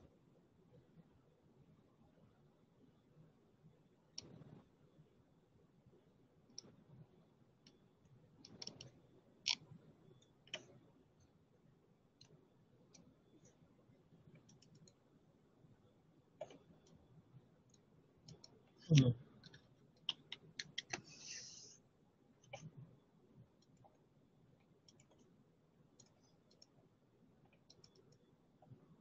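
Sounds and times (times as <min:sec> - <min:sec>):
computer mouse and key clicks: 0:04.1 - 0:04.6, 0:06.5 - 0:06.8, 0:08.4 - 0:10.8, 0:14.3 - 0:15.0, 0:16.4 - 0:17.0, 0:17.7 - 0:21.1, 0:24.8 - 0:25.3, 0:26.0 - 0:26.8, 0:27.5 - 0:28.3.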